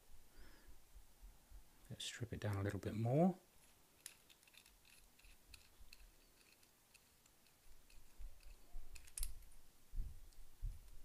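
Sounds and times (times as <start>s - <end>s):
small metal and glass parts clicking: 3.6s - 9.6s.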